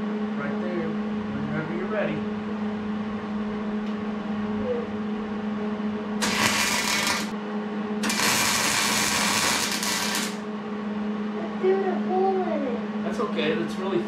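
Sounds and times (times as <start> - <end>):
steady low hum: 0.0 - 14.0
welder arcing: 6.2 - 7.3, 8.0 - 10.4.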